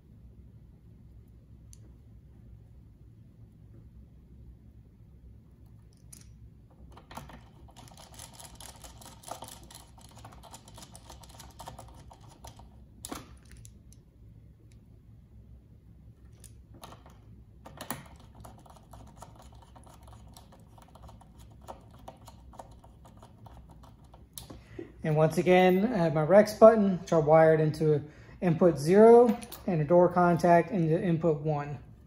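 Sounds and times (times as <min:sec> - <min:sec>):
wires clicking and crinkling: 0:05.7 - 0:14.9.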